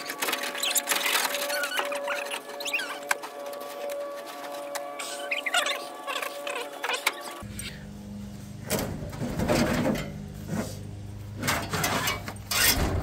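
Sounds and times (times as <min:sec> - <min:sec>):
steady low hum: 0:03.3 - 0:13.0.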